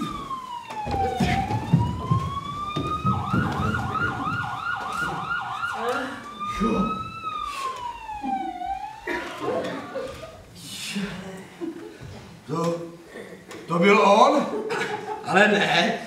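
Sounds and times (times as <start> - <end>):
police siren wail and yelp: 0.0 - 10.4
low thuds: 0.8 - 5.3.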